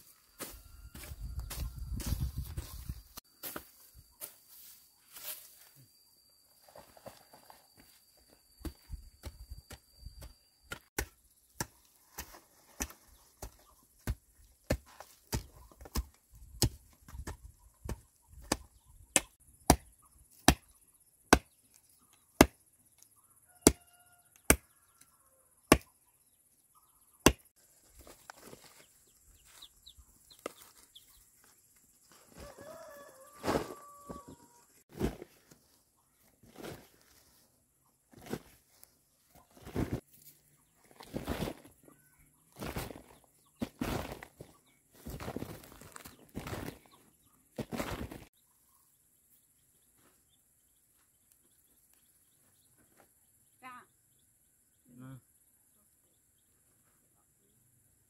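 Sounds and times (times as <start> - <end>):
dry soil scraping and rustling: 0.0 - 5.7, 27.6 - 48.4.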